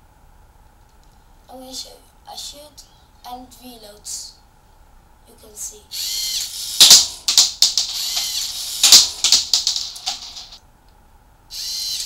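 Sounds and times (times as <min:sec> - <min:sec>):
toy gun clacks: 0:06.4 - 0:10.6.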